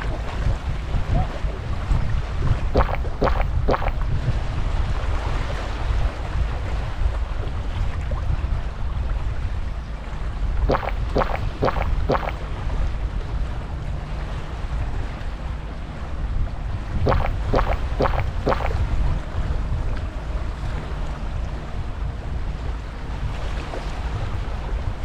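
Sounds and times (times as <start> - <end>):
wind rumbling on microphone: 0.0 - 13.6, 16.0 - 25.0
short sharp chirps: 2.8 - 4.0, 10.7 - 12.4, 17.1 - 18.8.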